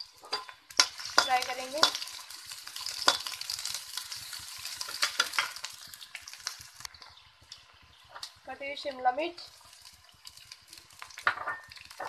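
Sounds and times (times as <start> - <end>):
metal spoon scraping a pan: 0.0 - 5.8
onions sizzling in oil: 0.0 - 12.0.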